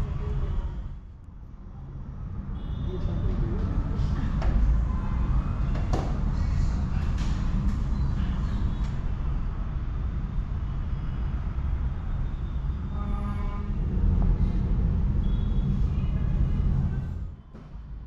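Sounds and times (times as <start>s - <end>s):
rumble of vehicle engines: 0.0s - 18.0s
vehicle horn honking: 12.9s - 13.8s.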